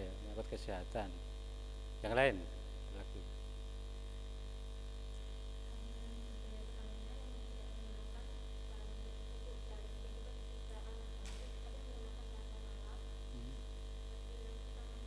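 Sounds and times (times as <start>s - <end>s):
electrical mains hum: 0.0s - 15.0s
faint voice speaking: 13.3s - 13.6s.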